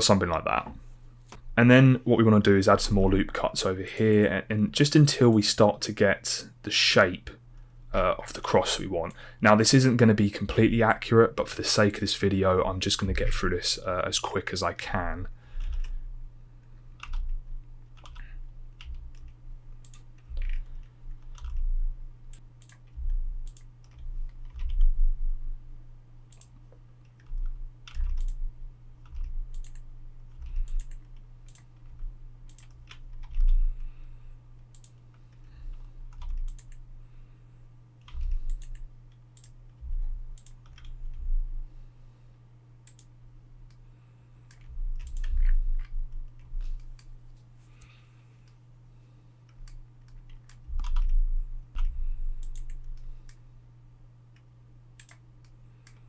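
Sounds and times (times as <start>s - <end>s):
steady low hum: 0.0s - 56.0s
keyboard keys clicking: 17.0s - 18.2s, 18.8s - 21.7s, 22.3s - 24.9s, 26.3s - 28.4s, 29.0s - 33.6s, 36.1s - 36.8s, 40.4s - 41.2s, 49.5s - 51.2s, 51.8s - 53.4s.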